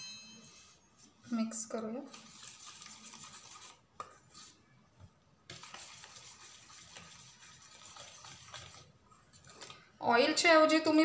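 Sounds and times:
stirring dry mixture in bowl: 1.6 - 4.7, 5.4 - 10.0.

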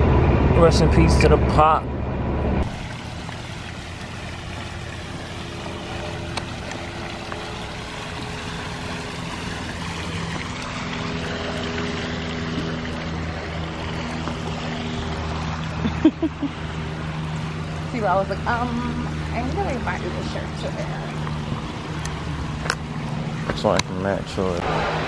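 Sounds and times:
engine drone: 0.0 - 25.0
low hum tones: 0.0 - 25.0
brief loud sound: 24.6 - 25.0
rushing noise: 24.6 - 25.0.

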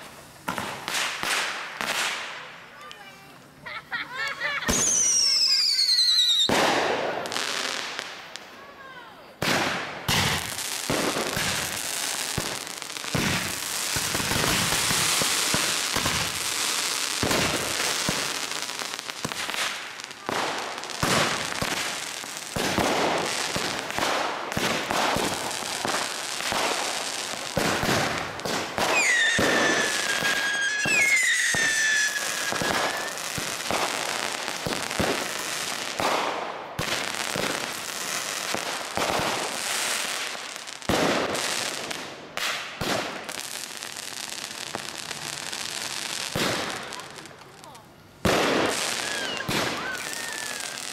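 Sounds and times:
fireworks bangs and crackles: 0.0 - 50.9
falling firework whistle: 4.7 - 7.0, 28.8 - 33.9, 48.7 - 50.9.

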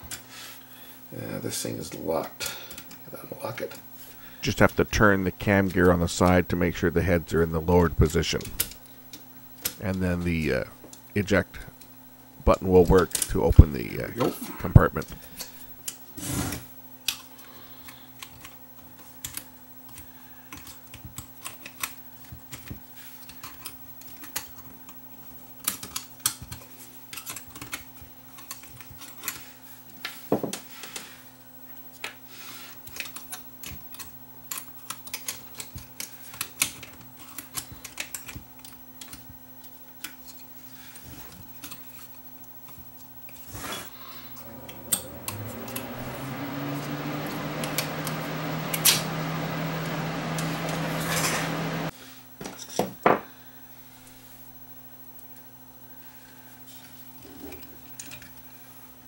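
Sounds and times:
faint steady hum: 0.0 - 16.1, 40.6 - 52.2
small clicks and taps of parts: 17.0 - 31.0, 32.8 - 40.5, 41.3 - 42.8, 57.5 - 58.4.

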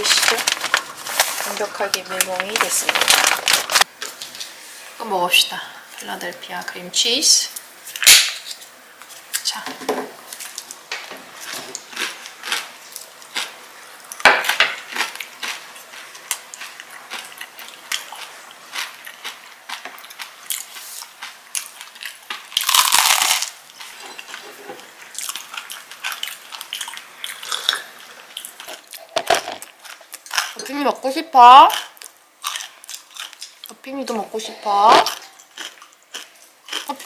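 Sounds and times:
crunchy bites: 17.9 - 23.6.

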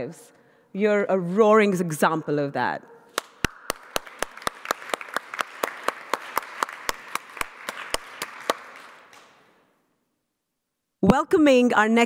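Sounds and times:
person clapping close to microphone: 3.1 - 9.5
audience applause: 3.6 - 9.3.

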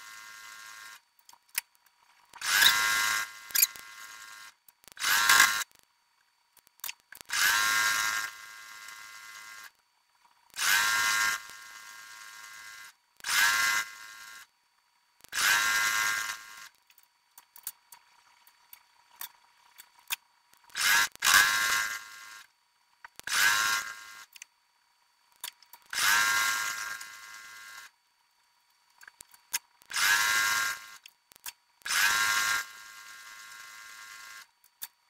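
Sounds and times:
small clicks: 0.8 - 3.9, 4.7 - 7.7, 16.2 - 22.0, 23.0 - 24.5, 25.3 - 27.9, 28.7 - 32.7, 33.5 - 35.0
sewing machine motor whine: 2.4 - 5.6.

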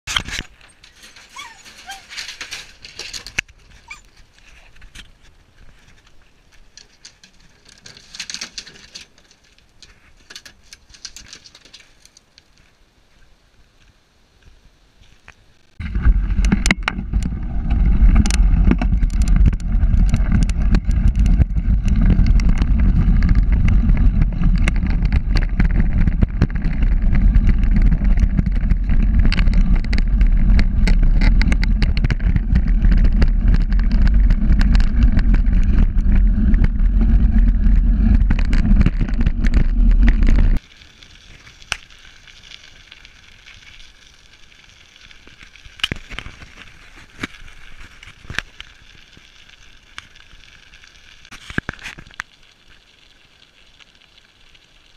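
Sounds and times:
bicycle tyres on gravel: 0.1 - 54.9
wind on microphone: 15.8 - 40.6.

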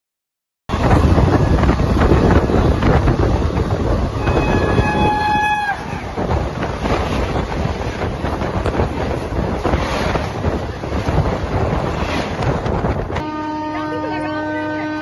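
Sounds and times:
train passing at speed: 0.7 - 15.0
wind buffeting microphone: 0.7 - 15.0
wheel-on-rail clatter: 6.2 - 13.2.

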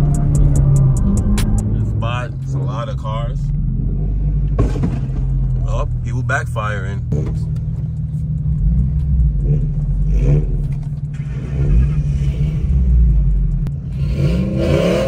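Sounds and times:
car engines rumbling and revving: 0.0 - 15.0
exhaust pop: 4.4 - 6.0, 6.9 - 12.0.

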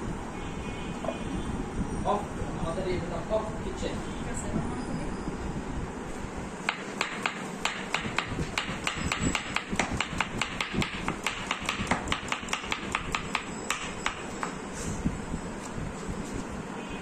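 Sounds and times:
steady low hum: 0.0 - 17.0
knife chopping on cutting board: 6.7 - 14.6.

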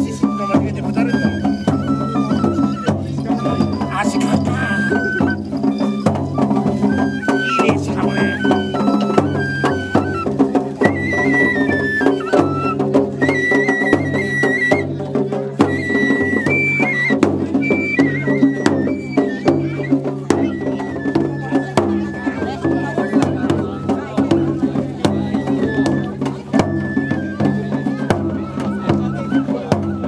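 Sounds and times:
sharp percussion strikes: 0.0 - 23.6
drums: 0.0 - 30.0
transverse flute melody: 0.0 - 30.0.

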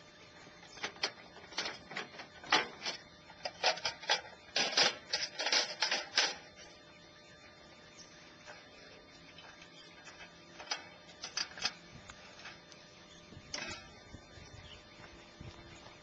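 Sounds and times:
wire legs clicking: 9.3 - 12.9.

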